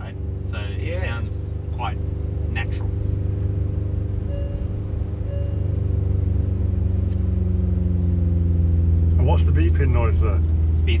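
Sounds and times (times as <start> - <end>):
synthesized engine drone: 1.2 - 9.0
short chime beeps: 4.3 - 5.7.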